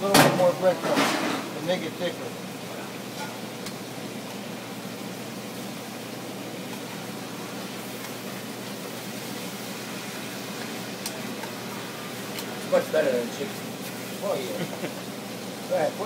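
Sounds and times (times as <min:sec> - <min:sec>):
kitchen air running: 0:00.0 - 0:16.0
meat frying in a pan: 0:00.0 - 0:16.0.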